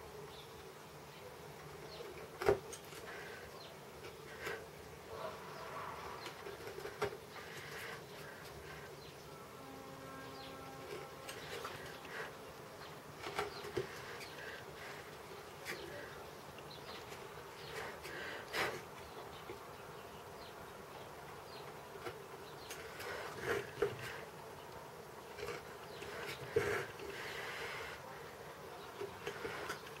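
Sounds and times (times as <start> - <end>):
steady buzzing hum: 6.8 - 18.4.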